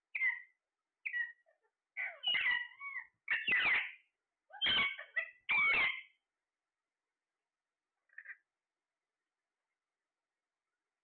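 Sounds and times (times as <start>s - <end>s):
parakeet squawks: 0.1s - 6.2s, 8.1s - 8.4s
parakeet wavering calls: 0.1s - 6.2s.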